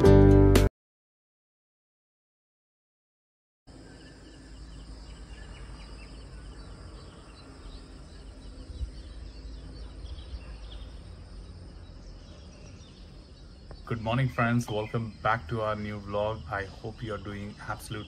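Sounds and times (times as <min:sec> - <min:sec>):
birds chirping: 0:03.7 - 0:18.0.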